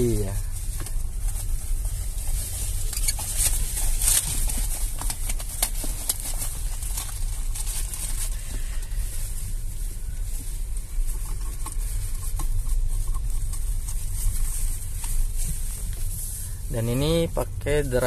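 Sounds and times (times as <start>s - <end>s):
tyre rumble inside car: 0.0s - 17.8s.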